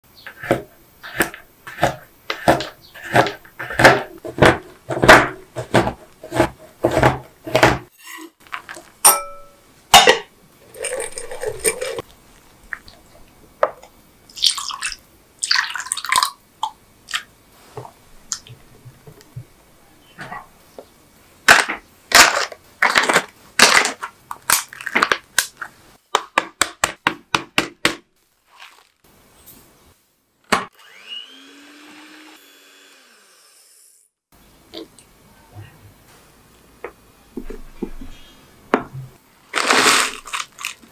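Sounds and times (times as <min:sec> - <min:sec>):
knife chopping chocolate on board: 0:00.4 - 0:07.9
milk pouring: 0:10.6 - 0:13.1, 0:14.4 - 0:16.4
whisk stirring in glass bowl: 0:10.8 - 0:12.0.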